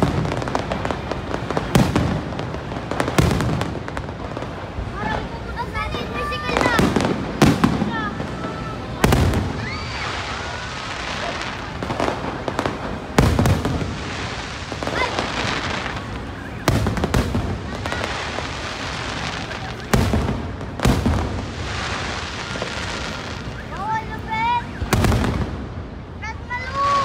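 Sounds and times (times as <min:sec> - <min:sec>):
fireworks crackling: 0:00.0 - 0:27.0.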